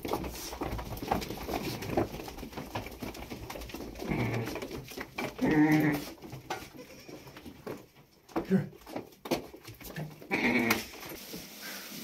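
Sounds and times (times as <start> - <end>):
animals calling: 4.0 - 4.7.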